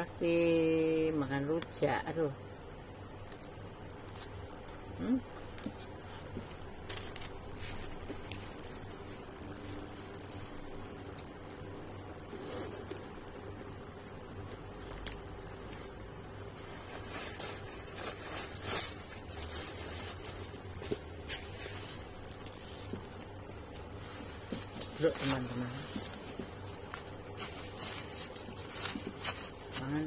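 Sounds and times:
low steady hum: 0.0 - 30.0
handbag rustling: 4.0 - 30.0
handbag scraping and clicking: 5.4 - 30.0.

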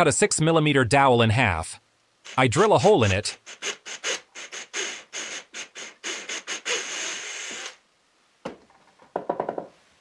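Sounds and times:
drill boring through wood: 2.3 - 7.8.

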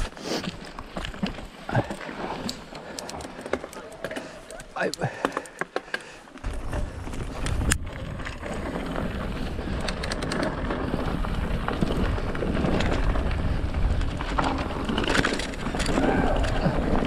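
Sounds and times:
bike clicks and rattles: 0.0 - 17.0
tyres rumbling on dirt: 0.0 - 17.0
wind buffeting microphone: 6.4 - 17.0.

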